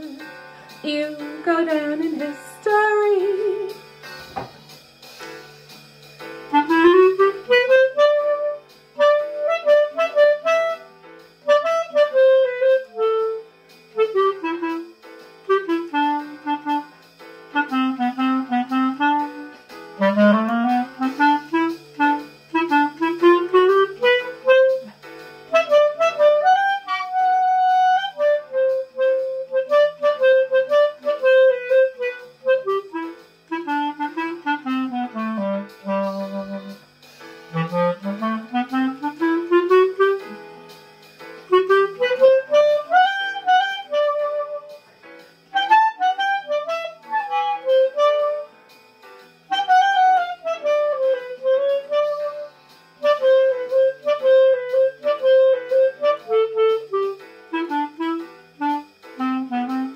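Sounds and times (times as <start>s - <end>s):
clarinet melody: 0.0s - 3.8s, 6.4s - 48.8s, 49.4s - 59.9s
quiet accompaniment: 0.0s - 59.9s
thump: 4.2s - 4.7s.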